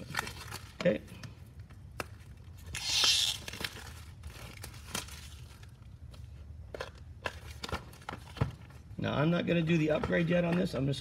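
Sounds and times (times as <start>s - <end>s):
plastic wrapping crinkling and tearing: 0.0s - 1.0s, 2.5s - 6.1s.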